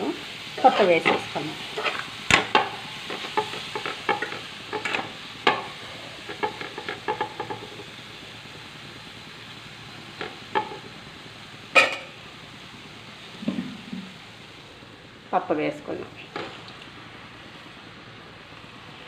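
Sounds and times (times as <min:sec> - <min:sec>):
food sizzling in oil: 0:00.0 - 0:19.0
spatula scraping metal pan: 0:00.6 - 0:02.1.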